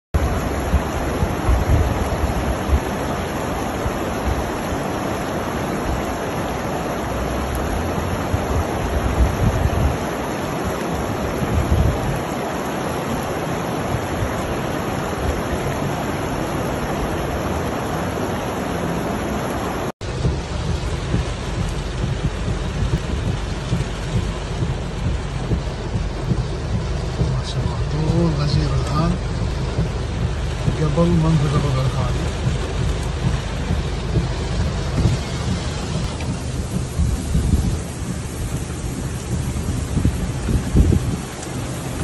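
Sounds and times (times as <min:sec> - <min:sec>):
flood water rushing: 0:00.2 - 0:42.0
wind gusting on microphone: 0:00.2 - 0:42.0.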